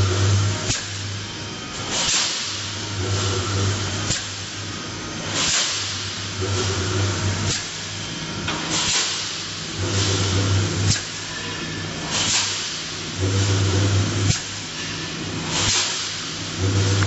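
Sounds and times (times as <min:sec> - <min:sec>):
welding machine electrical hum: 0:00.0 - 0:17.0
sharp air hisses: 0:05.3 - 0:06.2, 0:08.6 - 0:10.2, 0:12.1 - 0:12.9, 0:15.5 - 0:16.3.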